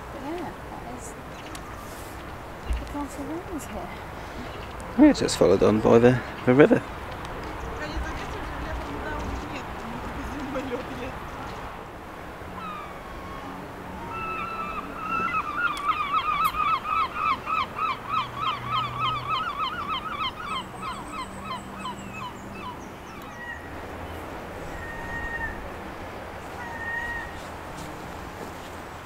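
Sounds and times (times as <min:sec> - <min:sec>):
waterfowl honking: 0:12.5 - 0:22.8.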